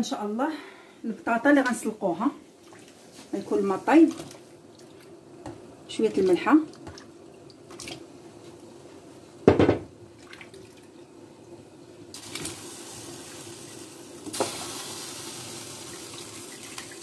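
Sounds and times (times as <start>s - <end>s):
steady watery hiss: 12.1s - 17.0s.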